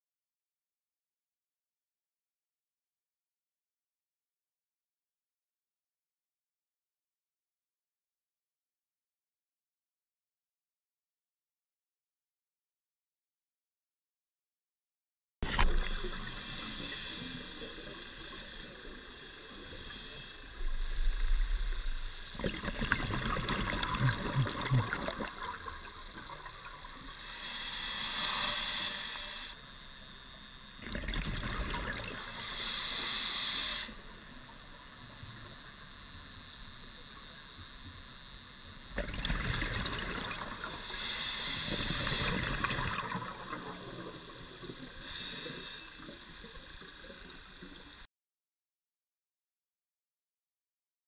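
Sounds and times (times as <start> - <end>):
regulator hiss: 15.4 - 48.1
underwater water noise: 15.4 - 48.1
exhaled bubbles underwater: 20.6 - 27.1, 30.8 - 32.4, 38.9 - 48.0.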